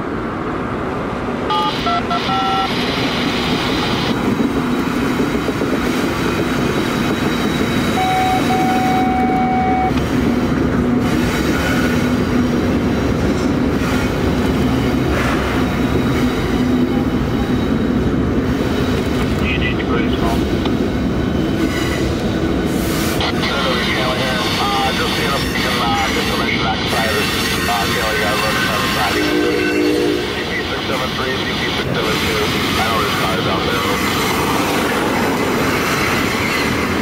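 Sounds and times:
diesel locomotive engine drone: 0:00.0 - 0:37.0
train wheels on rail: 0:02.6 - 0:37.0
brief high tones: 0:08.0 - 0:09.9.

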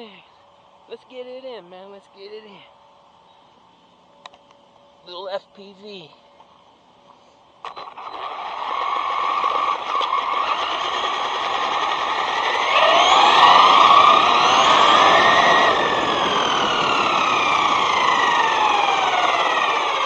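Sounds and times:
electric motor whining: 0:07.7 - 0:20.0.

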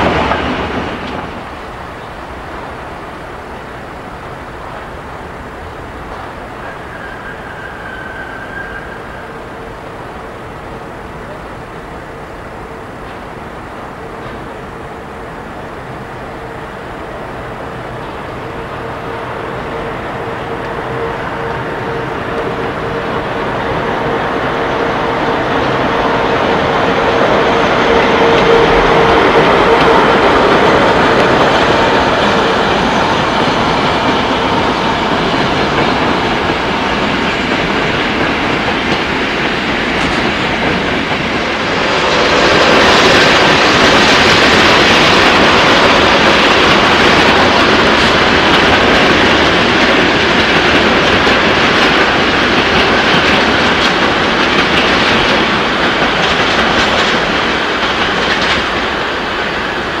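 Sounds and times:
train wheels clacking over rail joints: 0:27.6 - 0:59.9.

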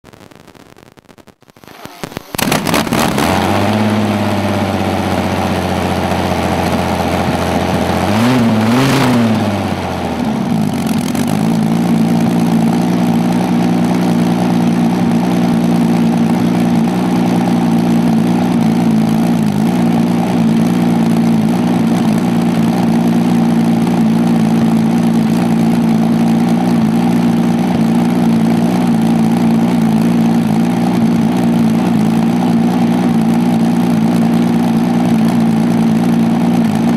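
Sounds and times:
engine starting and idling: 0:01.6 - 0:04.3.

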